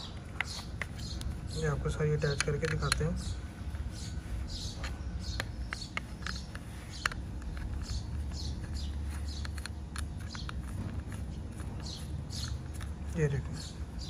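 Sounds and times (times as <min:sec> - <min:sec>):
small birds chirping: 0:00.0 - 0:14.0
steady low rumble: 0:00.0 - 0:14.0
sharp clicks: 0:02.2 - 0:03.4, 0:04.6 - 0:14.0.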